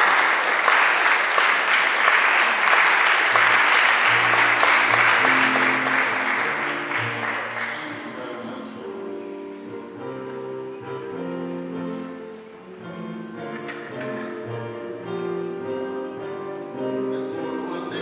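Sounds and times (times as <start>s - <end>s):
audience applause: 0.0s - 8.2s
music with slow held notes: 4.0s - 18.0s.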